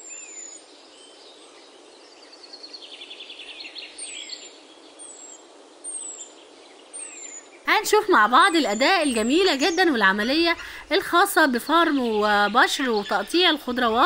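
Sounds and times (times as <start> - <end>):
birds chirping: 0.0 - 14.0
steady hiss: 0.0 - 14.0.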